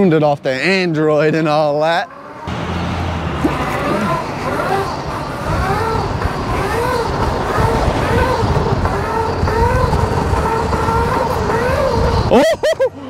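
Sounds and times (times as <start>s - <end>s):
electric motor whining: 2.2s - 12.4s
wind rumble on microphone: 5.0s - 12.3s.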